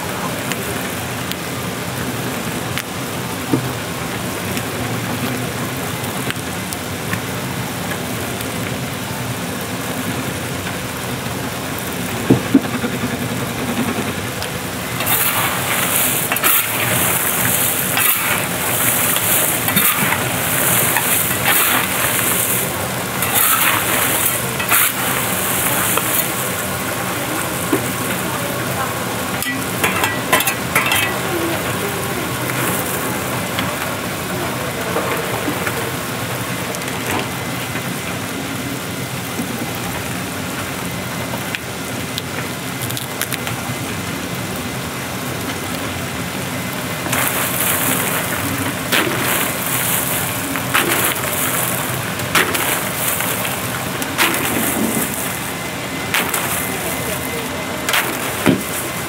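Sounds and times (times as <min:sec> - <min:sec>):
chestnuts and stones rattling in pan: 0:14.7 - 0:28.5, 0:29.4 - 0:31.4, 0:47.0 - 0:59.0.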